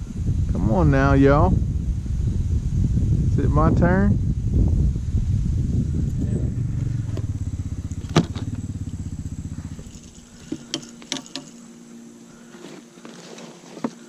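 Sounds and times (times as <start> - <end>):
faint steady hum: 0.0 - 14.0
atv engine running: 4.2 - 14.0
gear handling clicks: 7.1 - 11.7.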